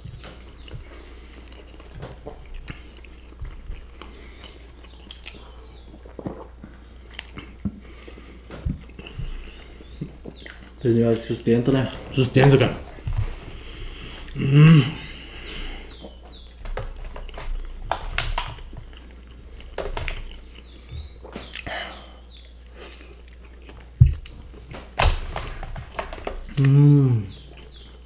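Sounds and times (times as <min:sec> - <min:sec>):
chewing and mouth sounds: 0:00.0 - 0:10.8, 0:12.8 - 0:28.0
person humming: 0:14.3 - 0:15.8, 0:26.5 - 0:27.4.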